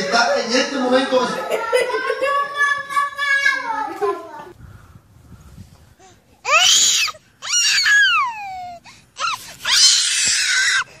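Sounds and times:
toddler shrieking: 0:06.5 - 0:11.0.

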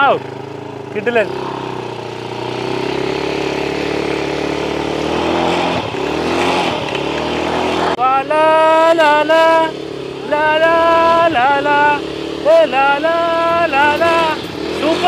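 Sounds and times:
jet ski engine running: 0:00.0 - 0:15.0.

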